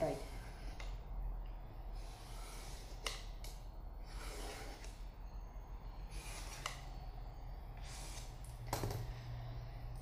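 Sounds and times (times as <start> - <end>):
pen scratching on board: 2.2 - 3.2, 4.1 - 5.0, 6.1 - 6.9.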